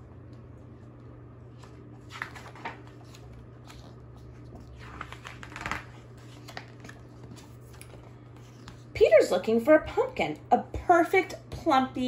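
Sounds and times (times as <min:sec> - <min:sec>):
low steady hum: 0:00.0 - 0:12.0
book pages turning: 0:00.8 - 0:09.0.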